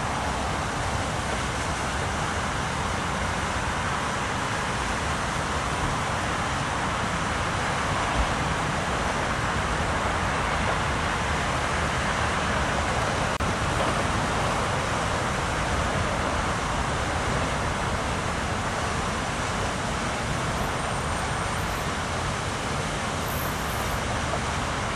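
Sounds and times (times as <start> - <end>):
road traffic rush: 0.0 - 24.9.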